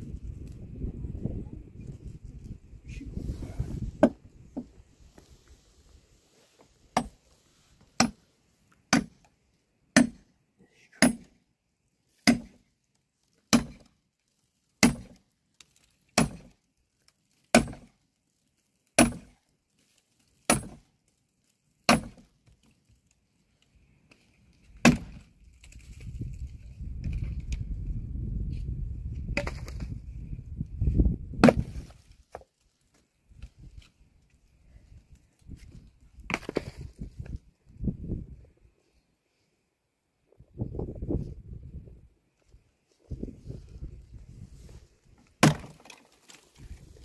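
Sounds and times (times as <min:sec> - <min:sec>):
axe chopping into tree trunk: 0:04.0 - 0:04.2, 0:06.9 - 0:07.2, 0:08.0 - 0:08.2, 0:08.9 - 0:09.2, 0:10.0 - 0:10.2, 0:11.0 - 0:11.4, 0:12.2 - 0:12.6, 0:13.5 - 0:13.9, 0:14.8 - 0:15.2, 0:16.2 - 0:16.5, 0:17.5 - 0:17.9, 0:19.0 - 0:19.4, 0:20.5 - 0:20.9, 0:21.9 - 0:22.3, 0:24.8 - 0:25.3, 0:29.4 - 0:29.9, 0:31.4 - 0:32.4, 0:45.4 - 0:46.0.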